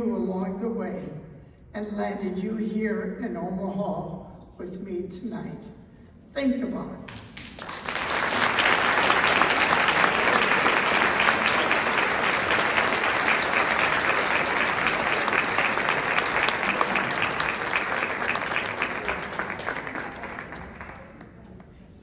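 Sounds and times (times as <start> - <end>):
audience applauding: 7.4 - 21.8.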